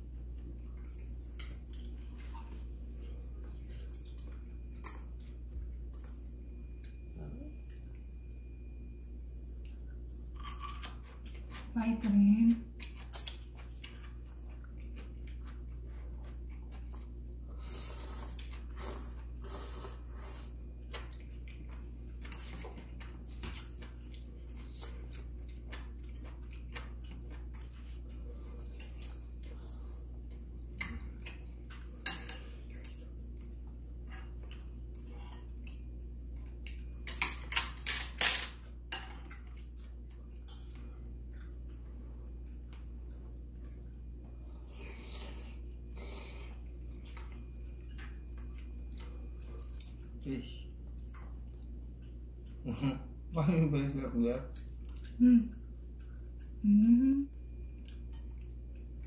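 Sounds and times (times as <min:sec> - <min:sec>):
utensils clinking on ceramic dishes: 0:32.0 - 0:33.1, 0:37.0 - 0:39.2.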